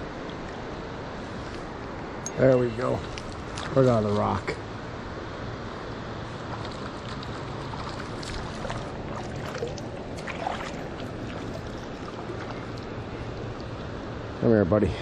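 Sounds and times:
rocky river flowing: 6.3s - 14.0s.

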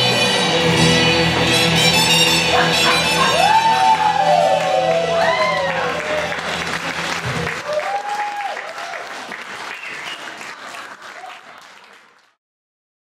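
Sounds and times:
backing music: 0.0s - 7.7s
audience applauding and cheering: 0.3s - 12.4s
person whooping: 2.4s - 6.4s, 7.6s - 9.1s.

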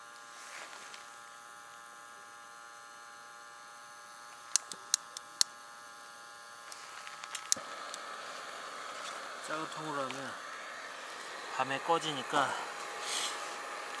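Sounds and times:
water pump humming: 6.7s - 14.0s.

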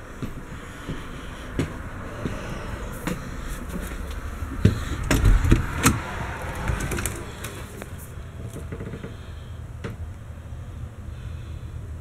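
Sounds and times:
footsteps on floor and stairs: 0.0s - 8.1s
steady low rumble: 0.0s - 12.0s.

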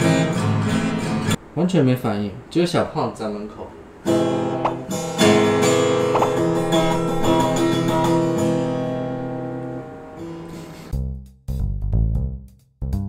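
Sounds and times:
acoustic guitar strummed: 0.0s - 1.4s, 4.1s - 10.9s
music with pulsing bass: 10.3s - 13.0s.

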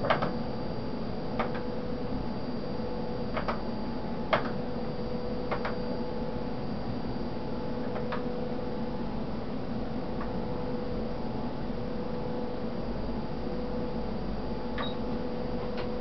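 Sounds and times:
machine hum with faint whine: 0.0s - 16.0s.

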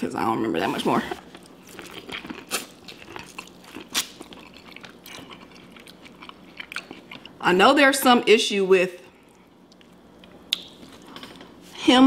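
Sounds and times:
person chewing corn on the cob: 1.2s - 7.4s.

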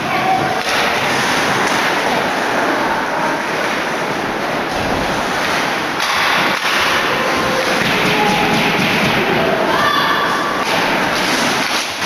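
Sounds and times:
crowd cheering and shouting: 7.0s - 11.2s.

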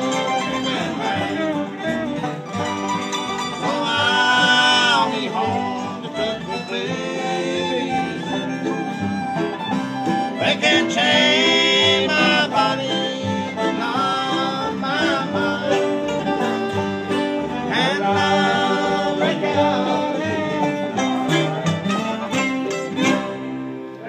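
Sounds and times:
man singing: 0.0s - 1.9s, 3.6s - 8.9s, 10.4s - 16.3s, 17.6s - 23.4s
acoustic guitars: 0.0s - 24.0s
banjo: 0.0s - 24.0s
fiddle: 0.0s - 24.0s.

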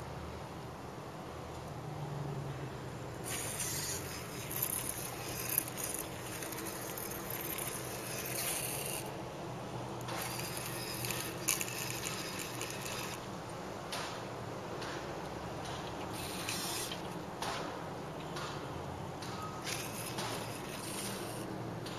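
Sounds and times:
small motors whirring: 3.2s - 9.3s, 10.0s - 13.6s, 15.8s - 17.3s, 19.3s - 21.9s.

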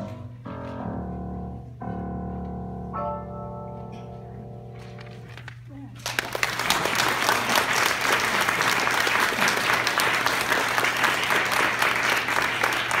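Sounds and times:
audience applauding: 6.0s - 13.0s
close hand claps: 6.0s - 13.0s.

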